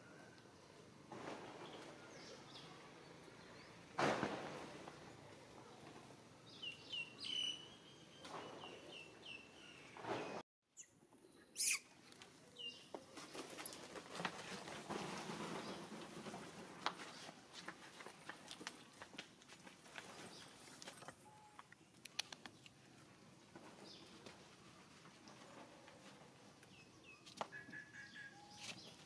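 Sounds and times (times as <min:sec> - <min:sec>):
short high chirping calls: 0:10.8 - 0:11.9
scattered clicks: 0:21.0 - 0:22.7.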